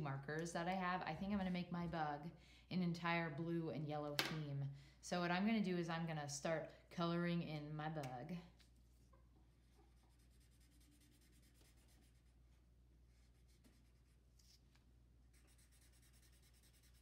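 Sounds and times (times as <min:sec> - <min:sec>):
marker scratching on paper: 0:09.9 - 0:12.3, 0:15.3 - 0:17.0.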